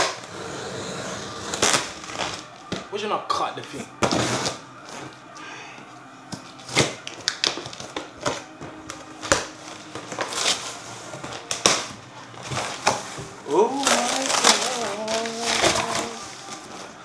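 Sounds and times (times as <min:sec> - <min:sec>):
cardboard and packing rustling: 0:01.0 - 0:03.0, 0:06.3 - 0:17.0.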